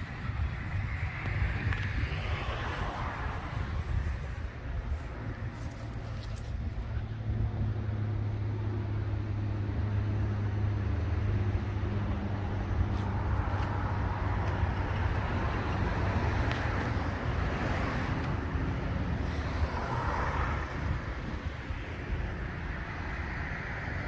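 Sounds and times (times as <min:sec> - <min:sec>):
road traffic rumble: 0:00.0 - 0:24.0
vehicle passing: 0:00.0 - 0:24.0.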